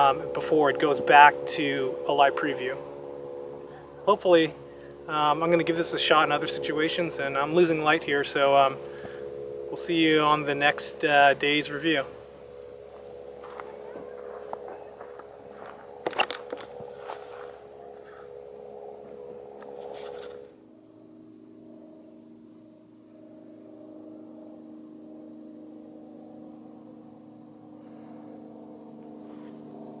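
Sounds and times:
gong-like drone: 0.0s - 30.0s
steady hum: 0.0s - 30.0s
sharp clicks and rustles: 14.4s - 18.2s.

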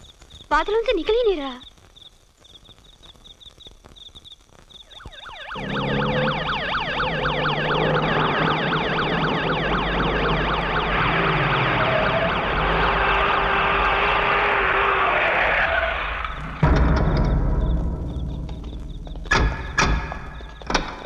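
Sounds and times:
crickets chirping: 0.0s - 14.2s, 15.0s - 21.0s
ambulance siren wailing: 4.9s - 16.4s
vehicle engines running: 5.4s - 16.6s.

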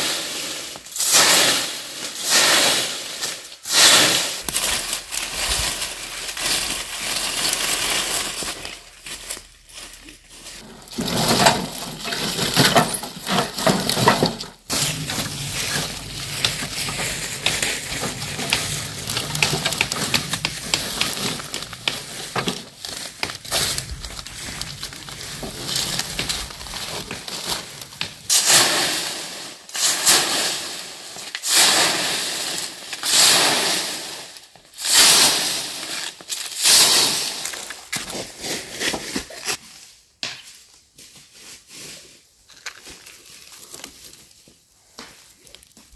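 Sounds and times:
dry branches rustling and snapping: 3.8s - 28.7s.

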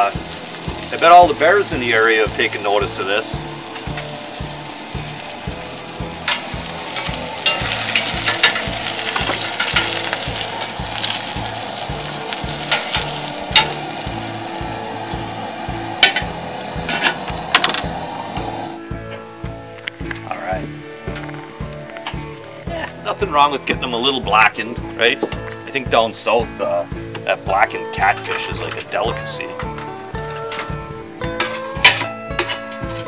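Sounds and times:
fish sizzling in hot oil: 0.0s - 18.8s, 30.8s - 33.0s
tongs clicking on pan: 6.2s - 13.8s.

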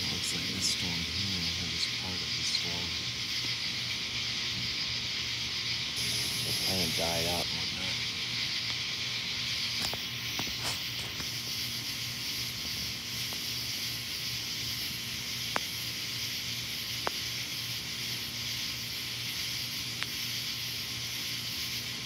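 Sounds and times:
high-pitched night ambience hiss: 0.0s - 22.0s
faint ticks: 15.5s - 15.7s, 17.0s - 17.2s, 19.9s - 20.2s.

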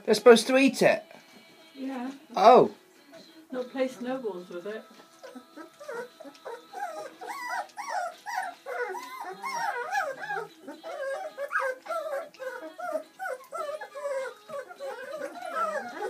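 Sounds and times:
puppies whining and squeaking: 3.0s - 4.2s, 4.8s - 16.0s.

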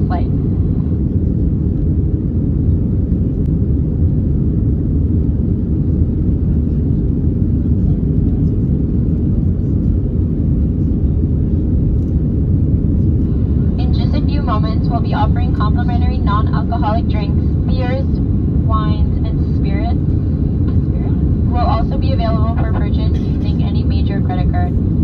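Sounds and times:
airflow over fuselage: 0.0s - 25.0s
airliner cabin engine rumble: 0.0s - 25.0s.

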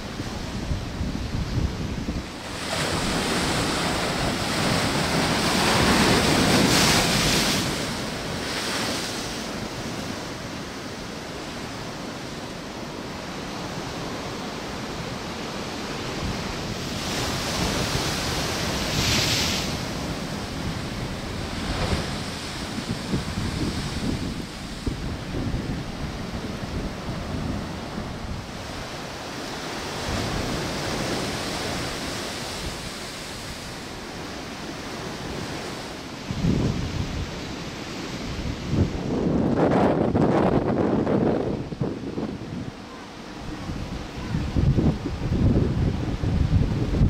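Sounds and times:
wind buffeting microphone: 0.0s - 9.0s, 16.2s - 29.0s, 35.1s - 42.8s, 43.4s - 47.0s
surf crashing on rocky shore: 0.0s - 47.0s.

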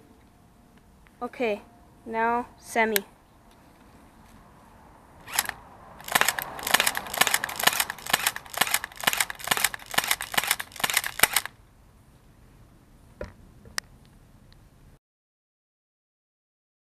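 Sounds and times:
airsoft pistol shots clacking: 5.3s - 11.5s.

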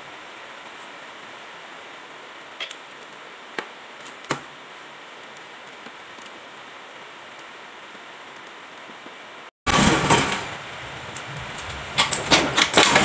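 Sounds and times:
steady hiss: 0.0s - 9.5s.

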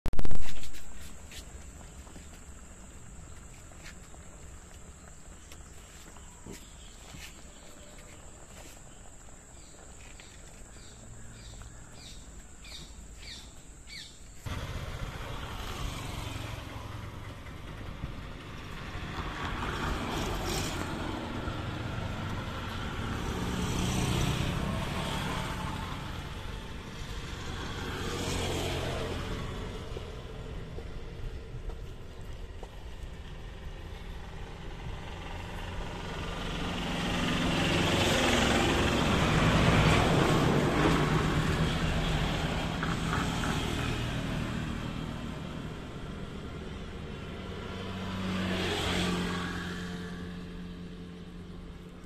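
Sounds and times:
vehicles passing: 0.2s - 52.0s
bird chirps: 4.9s - 14.4s.

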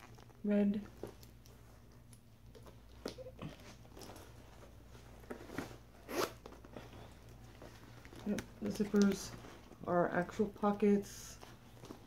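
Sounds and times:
leather bag rustling: 2.6s - 9.9s, 11.3s - 12.0s
zipper clicks: 6.0s - 6.6s.

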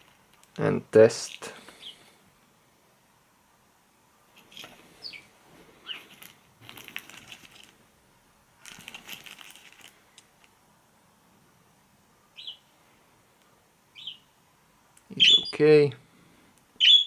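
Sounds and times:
plastic crinkling: 5.8s - 7.8s, 8.6s - 10.6s
high falling chirps: 15.1s - 15.7s, 16.8s - 17.0s.

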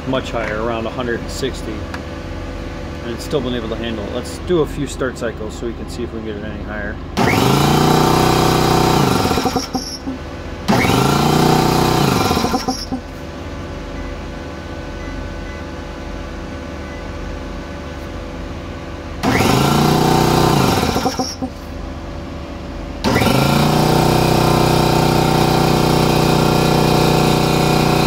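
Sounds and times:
air compressor motor starting and stopping: 7.1s - 13.7s, 19.2s - 22.0s, 23.0s - 28.0s
steady hum: 8.8s - 15.2s, 15.8s - 23.1s.

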